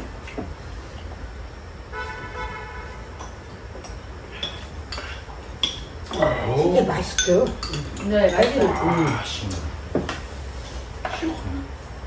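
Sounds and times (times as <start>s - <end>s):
horn-like tone: 1.9s - 3.1s
chopsticks and spoons clicking on bowls: 3.2s - 10.3s.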